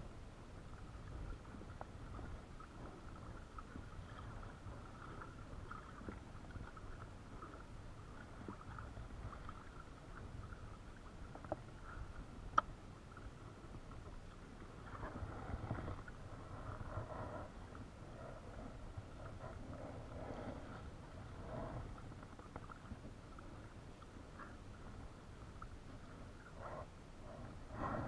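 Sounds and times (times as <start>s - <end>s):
water rumbling along hull: 0.0s - 28.0s.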